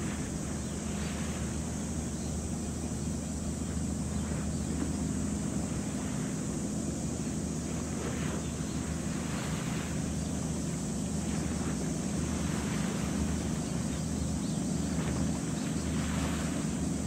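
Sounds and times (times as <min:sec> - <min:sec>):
ship diesel engine drone: 0:00.0 - 0:17.0
water noise: 0:00.0 - 0:17.0
wind: 0:00.0 - 0:17.0.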